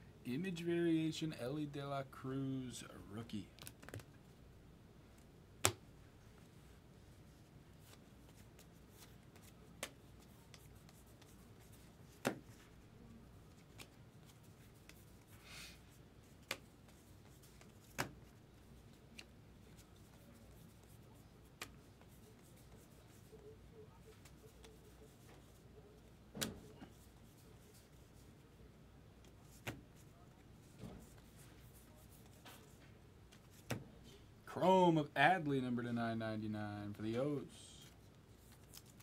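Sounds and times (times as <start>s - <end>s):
cards clicking set down: 3.6s - 4.1s, 17.9s - 18.2s.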